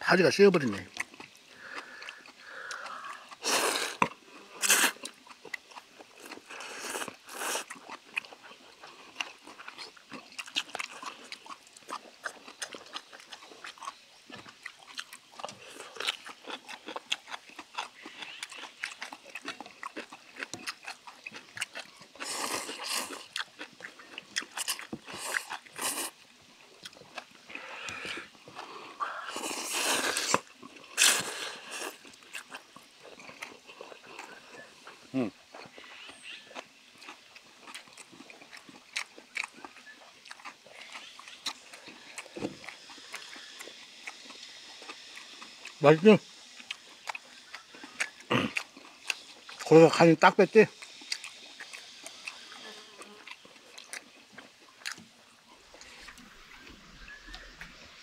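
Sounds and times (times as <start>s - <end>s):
chewing: 0.4s - 58.0s
slurping noodles: 1.6s - 5.1s, 6.2s - 7.9s, 22.2s - 26.2s, 27.5s - 32.2s
mouth clicks: 33.2s - 55.0s.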